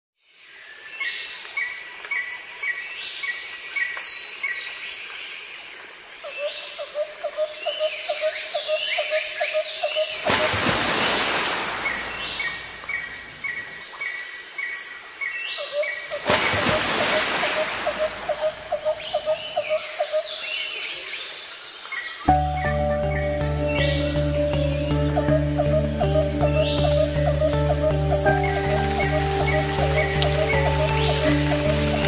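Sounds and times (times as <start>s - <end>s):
birds chirping: 9.8s - 14.1s, 14.7s - 21.3s, 22.0s - 32.0s
loud steady hiss: 10.2s - 13.9s, 27.9s - 32.0s.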